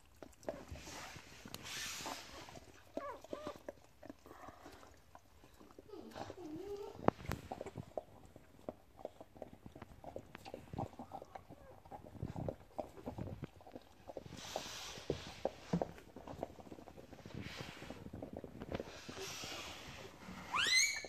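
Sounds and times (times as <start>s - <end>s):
dog licking and chewing: 0.0s - 21.0s
rustle on bedding: 14.3s - 16.1s, 18.8s - 20.5s.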